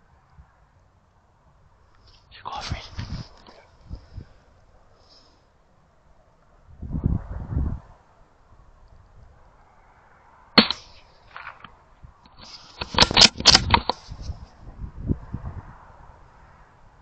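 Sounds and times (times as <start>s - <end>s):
rifle shot crack: 10.6s - 11.6s.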